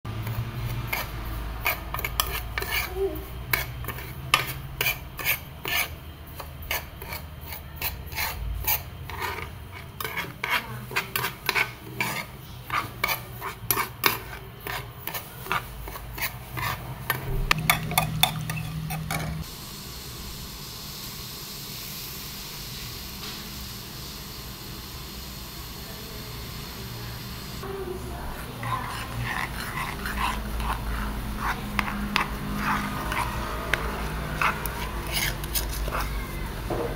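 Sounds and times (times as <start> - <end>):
metal spoon scraping pan: 0.2 - 19.4, 28.1 - 36.7.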